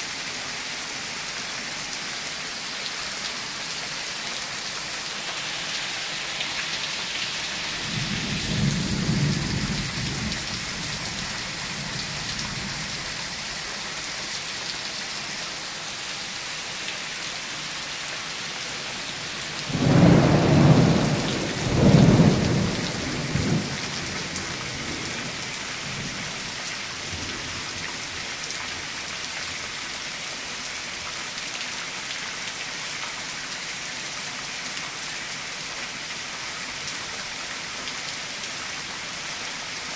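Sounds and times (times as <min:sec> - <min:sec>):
steady rain: 0:00.0 - 0:39.9
thunder rumbling: 0:07.8 - 0:11.2, 0:19.7 - 0:25.0.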